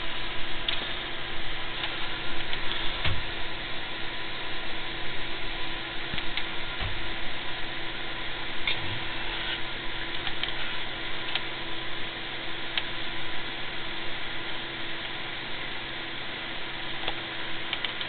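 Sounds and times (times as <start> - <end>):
faint electrical hum: 0.0 - 18.0
fans whirring: 0.0 - 18.0.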